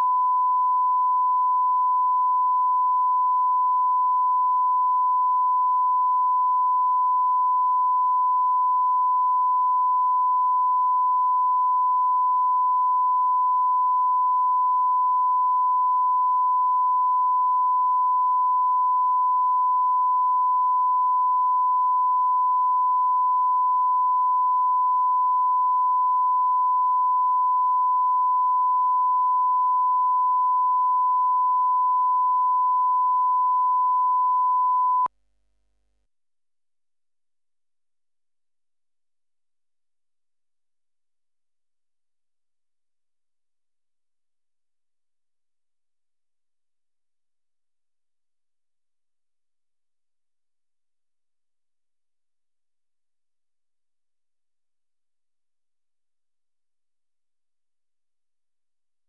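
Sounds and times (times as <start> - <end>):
steady sine test tone: 0.0 - 35.9.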